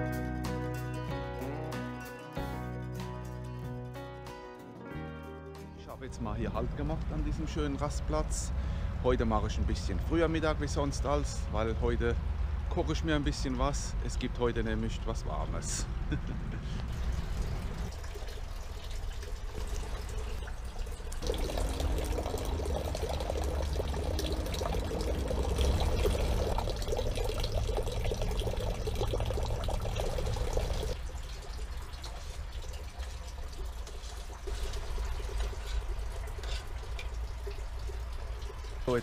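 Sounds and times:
liquid bubbling in a pot: 17.1 - 39.0
low steady rumble: 20.3 - 32.2.

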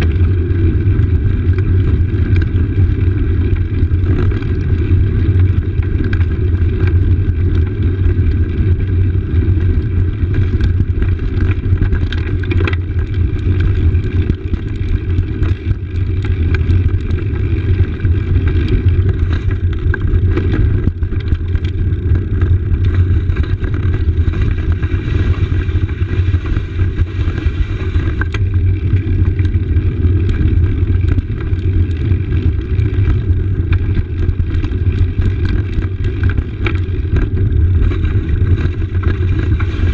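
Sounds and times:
bicycle tyres rolling over paving: 0.0 - 39.9
wind on microphone: 15.2 - 39.9.

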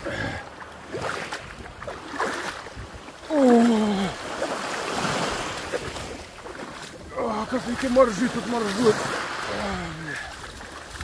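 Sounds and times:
water splashing and sloshing: 0.0 - 11.0
man groaning: 3.3 - 4.2.

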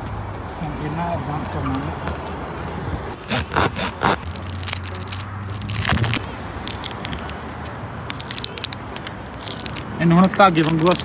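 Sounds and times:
plastic wrapper crackling: 3.2 - 7.4, 8.0 - 11.0.

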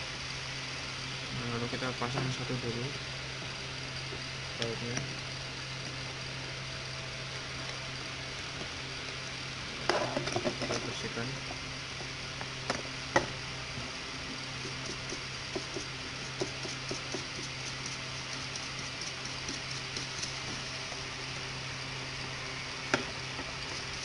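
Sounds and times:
steady low hum: 0.0 - 24.0
brush scrubbing circuit board: 14.6 - 20.6.

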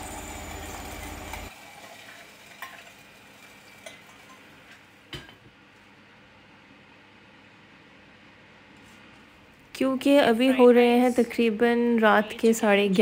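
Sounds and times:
hot oil sizzling: 0.0 - 5.0.

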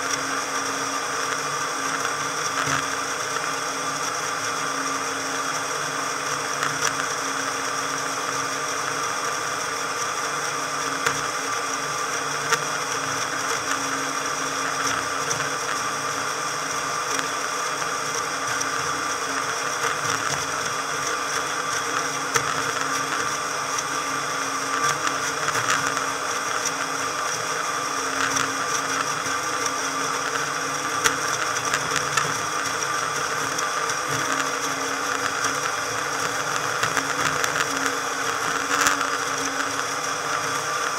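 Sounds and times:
motorboat engine drone: 0.0 - 40.9
water and hull noise: 8.6 - 40.9.

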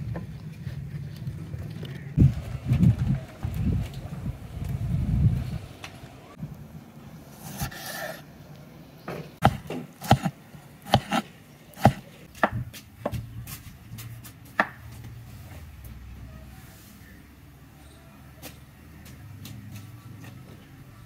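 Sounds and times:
knife chopping on cutting board: 9.4 - 12.6.

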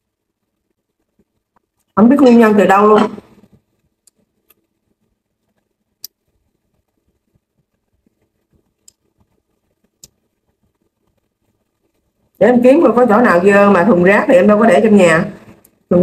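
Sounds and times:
faint clicks and taps: 0.3 - 2.0, 3.2 - 12.4.

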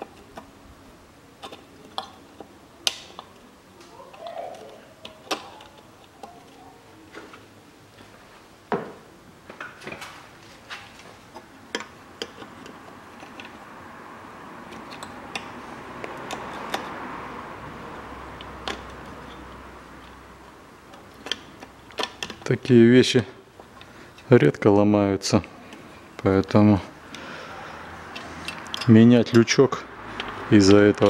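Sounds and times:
plastic and metal parts clicking: 4.5 - 6.6, 11.3 - 13.6, 20.9 - 22.6.

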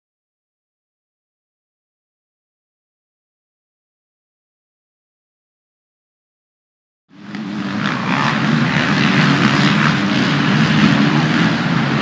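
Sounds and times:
motorcycle engines droning: 7.1 - 12.0.

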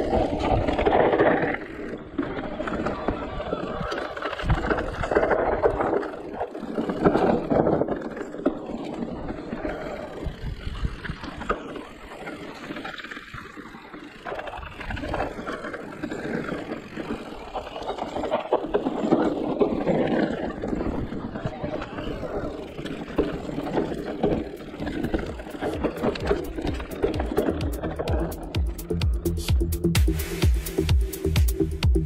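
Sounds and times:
tyres rolling over dirt trail: 0.0 - 30.4
bike knocks and rattles: 3.9 - 21.4, 22.1 - 29.4.

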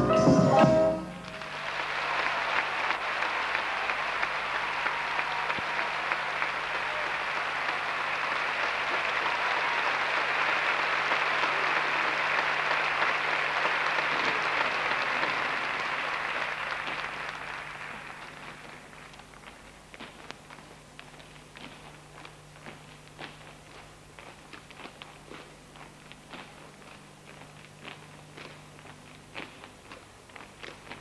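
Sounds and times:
audience applauding: 1.0 - 19.8.

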